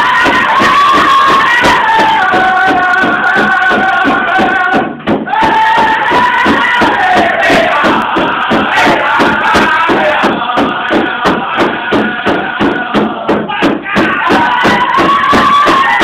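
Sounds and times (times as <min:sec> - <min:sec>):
large hand drum beating: 0:00.0 - 0:16.0
men singing together: 0:00.0 - 0:16.0.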